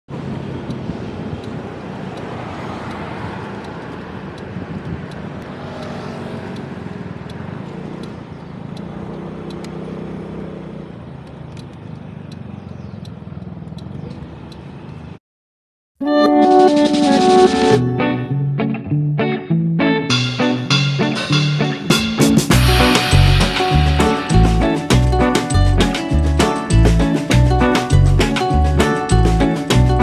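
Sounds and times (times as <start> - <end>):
road and wind noise: 0.1 - 15.2, 17.6 - 30.0
scooter engine running: 2.9 - 15.0
regular light ticking: 3.6 - 4.5, 5.1 - 9.8.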